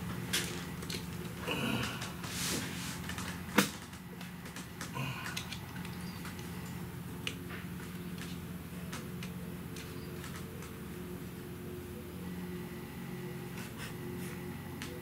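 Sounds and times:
steady low hum: 0.0s - 15.0s
hand tools clicking and tapping: 3.0s - 10.8s.

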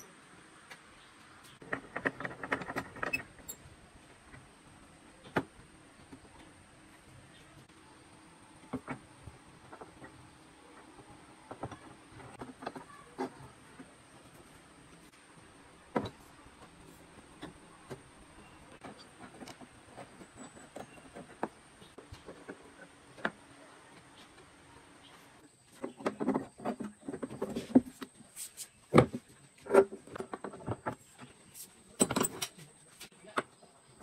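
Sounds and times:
metal clamps knocking and clanking: 32.0s - 32.6s.

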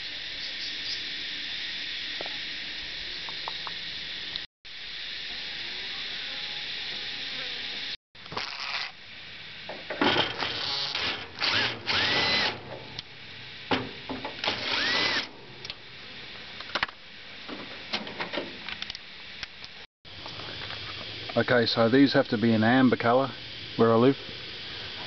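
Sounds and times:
cordless drill motor whining: 10.5s - 12.6s, 14.4s - 15.3s.

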